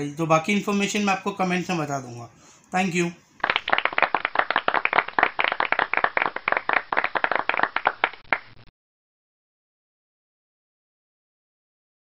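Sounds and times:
small crowd clapping: 3.4s - 8.7s.

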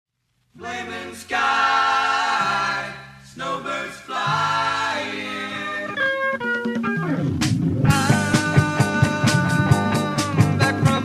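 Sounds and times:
a cappella group singing: 0.6s - 6.1s, 7.9s - 11.0s.

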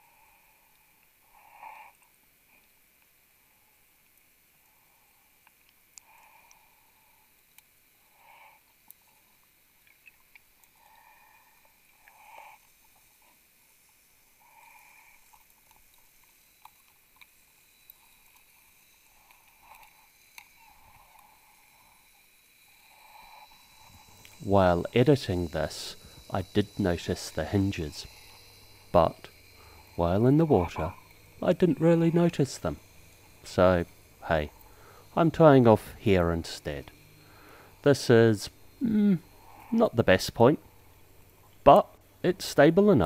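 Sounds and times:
faint underwater hissing: 0.0s - 43.0s.

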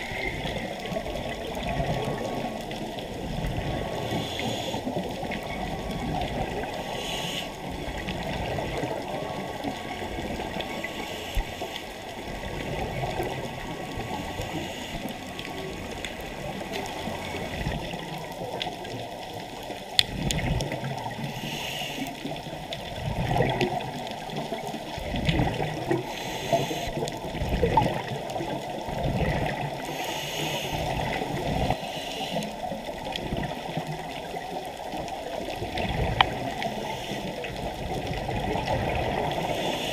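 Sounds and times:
gurgling exhaled bubbles: 0.0s - 31.8s, 32.4s - 39.9s
scuba regulator breathing: 3.8s - 5.1s, 6.6s - 8.1s, 10.7s - 12.1s, 13.7s - 15.9s, 21.2s - 22.4s, 25.9s - 27.1s, 29.8s - 32.8s, 36.5s - 37.7s, 39.2s - 39.9s.

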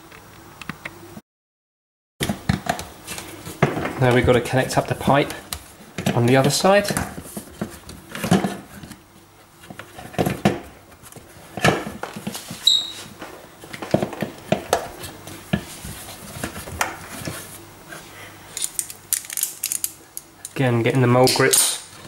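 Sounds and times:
brief high squeak: 12.6s - 13.1s
clicks and knocks of parts: 18.6s - 20.6s.

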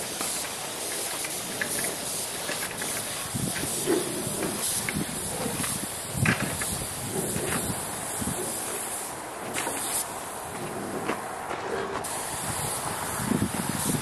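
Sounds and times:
paint spray gun hissing: 0.0s - 11.1s, 12.0s - 14.0s
wind buffeting microphone: 2.7s - 9.6s, 10.5s - 14.0s.

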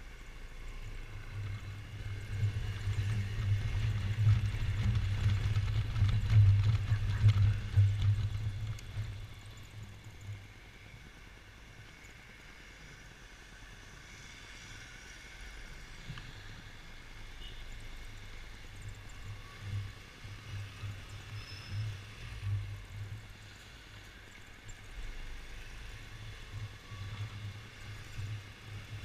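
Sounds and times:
uneven low rumble: 0.0s - 10.6s
scooter engine with faint whine: 0.0s - 29.0s.

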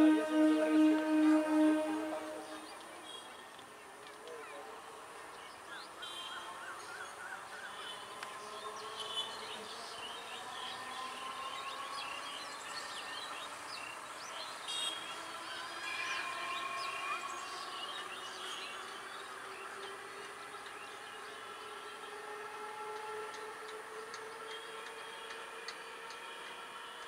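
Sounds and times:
train motors whining: 0.0s - 2.7s.

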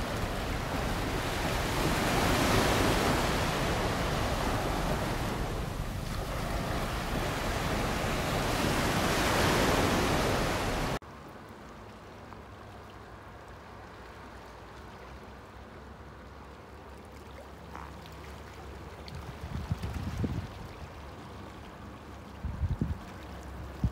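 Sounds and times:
sea waves breaking on beach: 0.0s - 11.0s.

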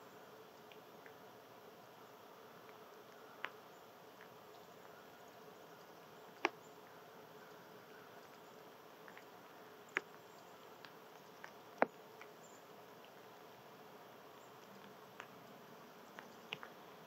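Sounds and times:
faint steady hum: 0.0s - 17.0s
squirrel chewing and cracking nuts: 2.6s - 13.6s, 14.2s - 17.0s.

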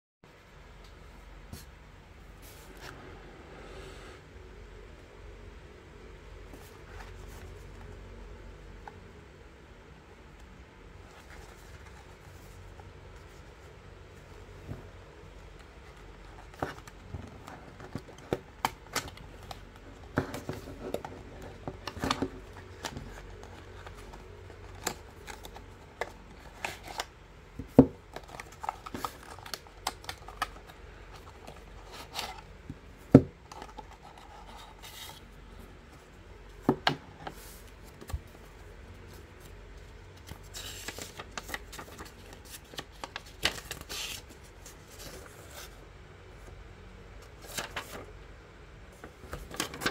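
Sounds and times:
paper rustling: 37.2s - 45.8s, 47.3s - 48.1s, 48.9s - 49.9s.

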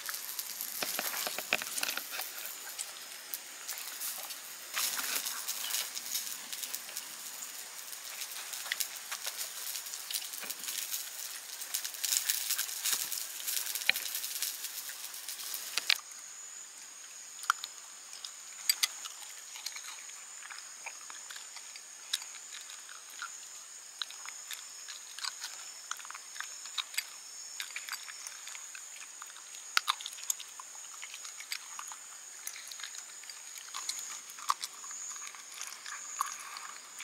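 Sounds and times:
dog crunching kibble: 0.0s - 14.2s, 24.0s - 37.0s.

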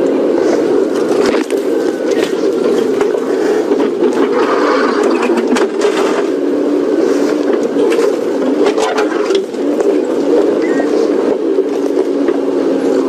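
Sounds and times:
vehicle engine running: 0.0s - 13.0s
vehicle body knocking and rattling: 0.9s - 6.3s.

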